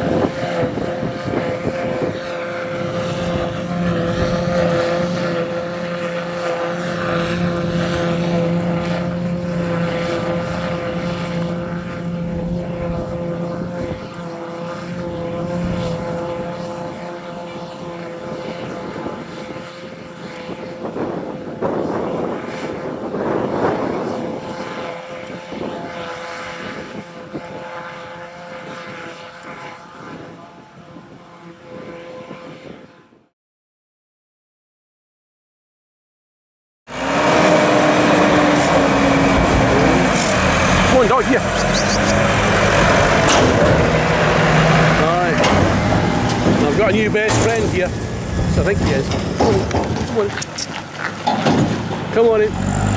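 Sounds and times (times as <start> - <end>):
tractor engines running: 0.0 - 19.2, 36.9 - 52.9
forage harvester chopping grass: 36.9 - 52.9.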